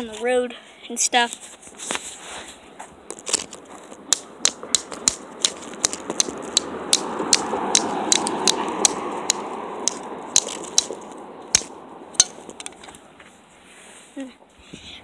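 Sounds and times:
dry stick snapping: 3.1s - 13.0s
pickup truck driving past: 6.0s - 12.7s.

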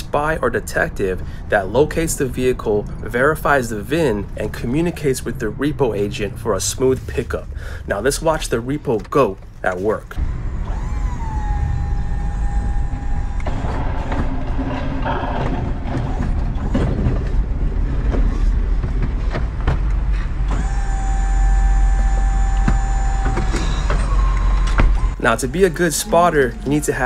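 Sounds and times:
hydraulic lift whining: 8.5s - 18.6s, 19.2s - 27.0s.

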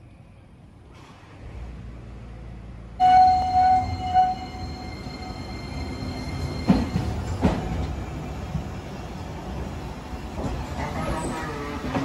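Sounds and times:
tram running rumble: 0.4s - 12.0s
loud ringing tone: 3.0s - 6.6s.

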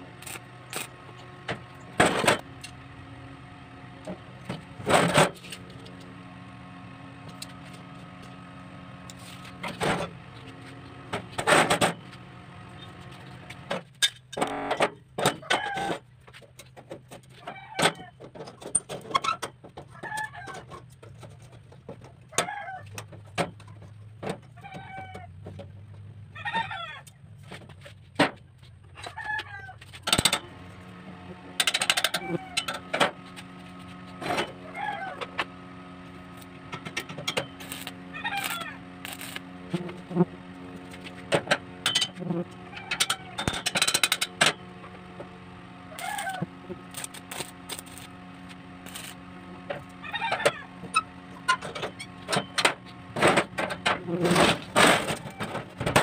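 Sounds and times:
steady low hum: 30.0s - 56.0s
chickens clucking: 34.6s - 35.4s, 49.8s - 50.8s.

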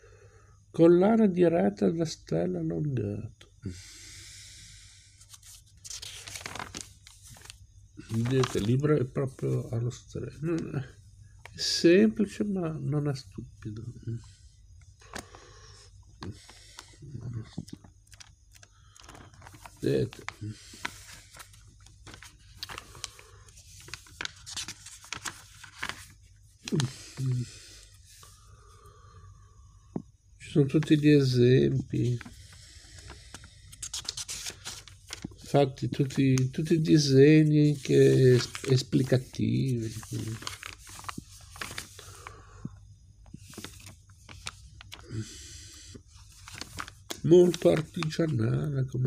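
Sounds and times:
book pages riffling: 5.2s - 8.8s, 18.1s - 27.3s, 33.0s - 35.5s, 37.7s - 42.1s, 43.4s - 45.1s, 46.1s - 48.2s
person murmuring: 26.7s - 27.5s.

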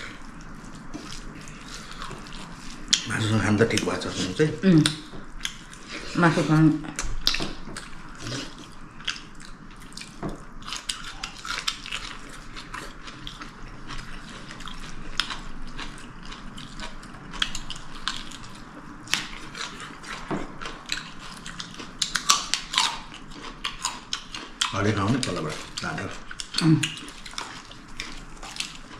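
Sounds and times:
person chewing food: 0.0s - 28.9s.

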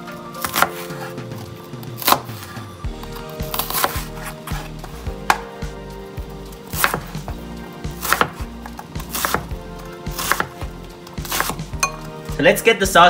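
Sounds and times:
knife chopping on wooden board: 0.4s - 2.5s, 3.1s - 5.5s, 6.7s - 7.2s, 7.9s - 12.1s.

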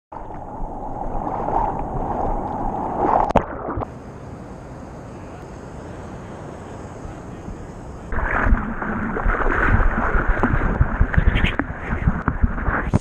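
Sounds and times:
small swells lapping: 0.1s - 3.9s, 8.1s - 12.8s
water splashing and gurgling: 0.1s - 3.9s, 8.1s - 13.0s.

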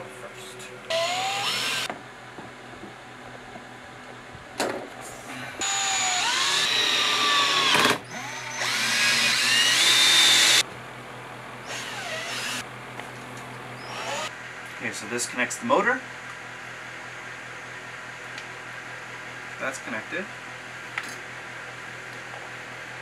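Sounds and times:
power drill driving screws: 0.9s - 1.9s, 5.6s - 10.6s, 11.7s - 12.6s, 13.8s - 14.3s.

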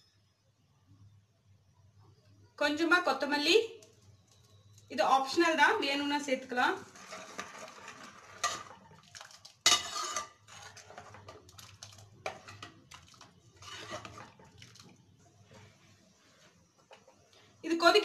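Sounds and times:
ladle scraping metal pot: 6.8s - 14.8s.

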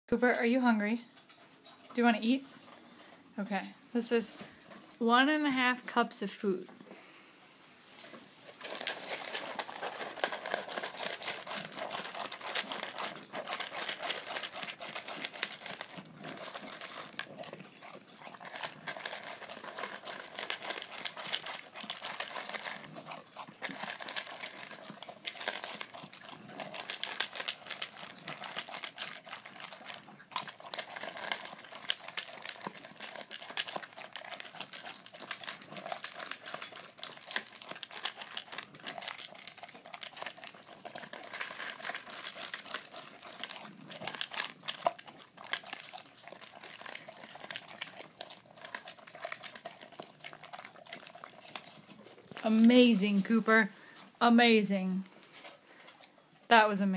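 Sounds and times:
dog crunching kibble: 8.0s - 56.5s
kibble clattering in plastic bowl: 8.6s - 51.7s.

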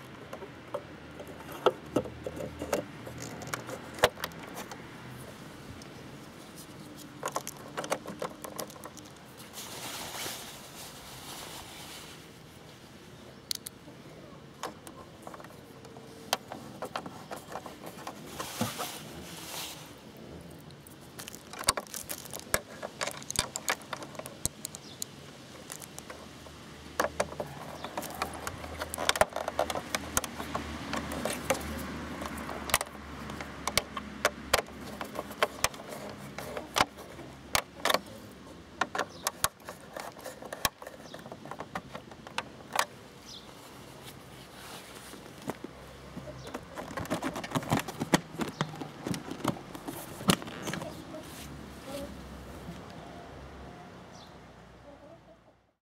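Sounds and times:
clicks and rattles of plastic: 0.0s - 4.8s, 7.0s - 9.4s, 14.6s - 18.4s, 21.1s - 43.0s, 45.4s - 51.1s.

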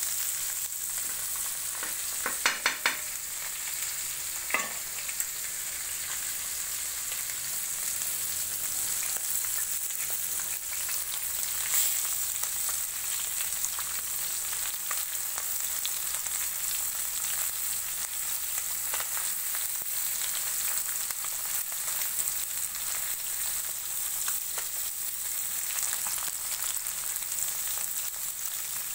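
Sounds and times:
fish frying in hot oil: 0.0s - 28.9s.

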